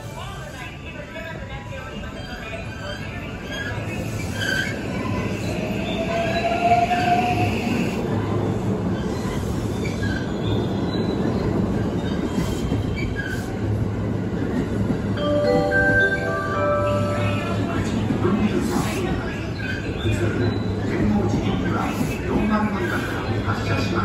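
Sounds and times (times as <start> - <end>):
train wheels rumbling on rails: 0.0 - 16.2, 17.4 - 24.0
electric train running past: 3.9 - 19.9.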